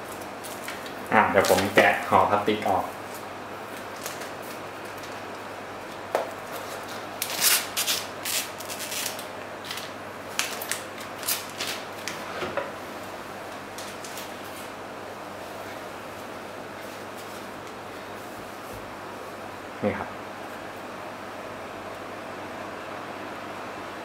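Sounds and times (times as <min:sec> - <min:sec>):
plastic wrapping crinkling: 0:00.0 - 0:05.2, 0:06.4 - 0:12.3.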